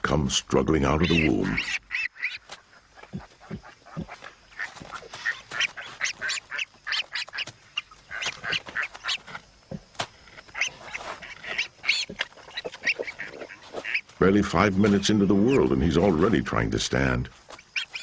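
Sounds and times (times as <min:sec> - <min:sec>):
piglets squeaking and squealing: 0:00.9 - 0:09.4, 0:10.3 - 0:14.1, 0:17.6 - 0:18.0.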